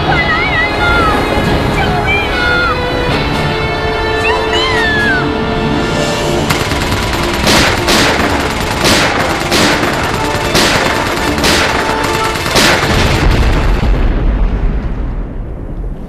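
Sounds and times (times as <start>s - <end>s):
tense background music: 0.0s - 16.0s
gunshots with echo: 6.5s - 13.8s
deep low boom: 12.9s - 16.0s.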